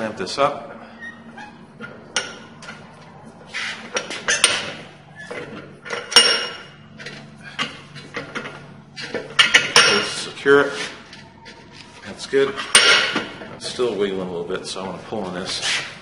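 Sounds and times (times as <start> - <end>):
metallic clanks of a bench vise: 1.8 - 2.8, 3.9 - 10.2, 12.6 - 13.6.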